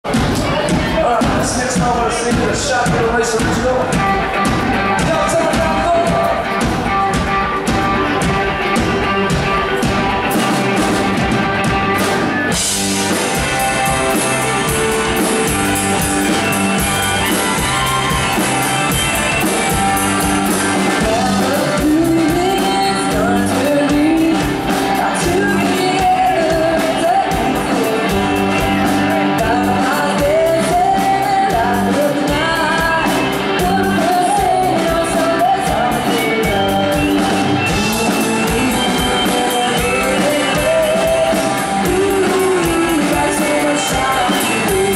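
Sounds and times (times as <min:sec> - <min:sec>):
live band playing: 0:00.0 - 0:44.9
woman singing: 0:20.4 - 0:44.9.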